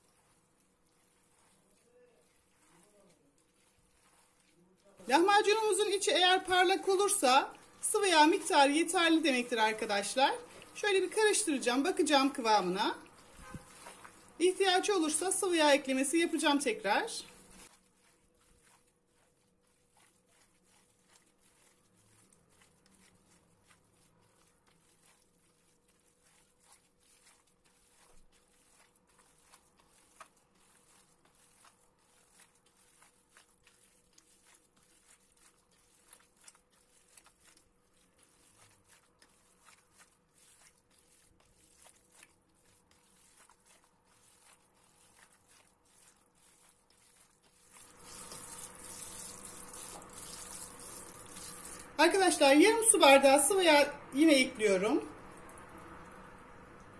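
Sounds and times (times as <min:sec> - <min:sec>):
hand kneading wet food: 0:00.0 - 0:56.9
faint steady hum: 0:43.3 - 0:56.9.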